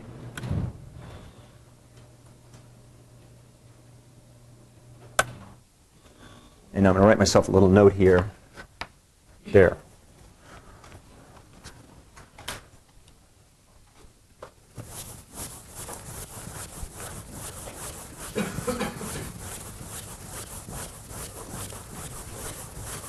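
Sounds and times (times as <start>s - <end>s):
rubbing strokes on a board: 14.8s - 23.0s
scrapes on a board: 14.8s - 23.0s.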